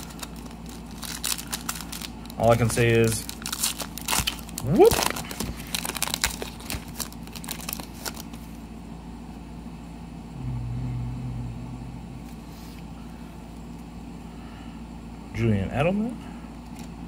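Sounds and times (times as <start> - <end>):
foil wrapper crinkling: 0.0 - 8.5
low steady hum: 0.0 - 17.0.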